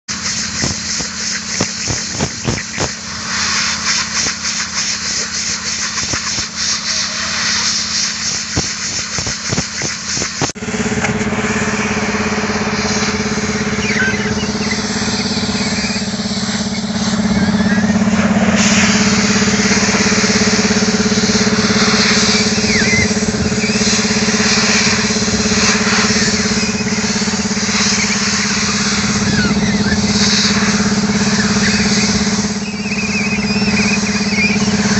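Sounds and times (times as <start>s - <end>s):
engine running steadily: 0.0s - 34.9s
compressed air hissing from hose: 0.1s - 10.6s, 11.6s - 34.9s.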